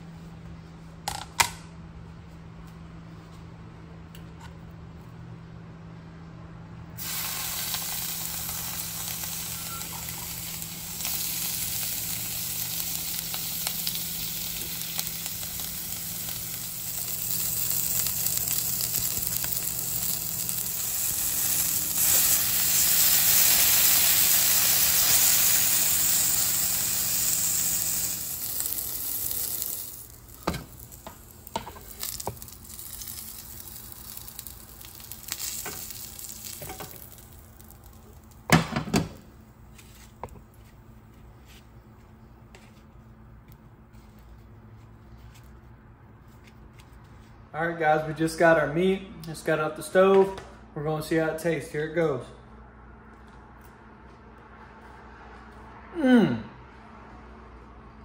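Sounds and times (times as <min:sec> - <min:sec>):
meat sizzling in frying pan: 0:07.0 - 0:38.0.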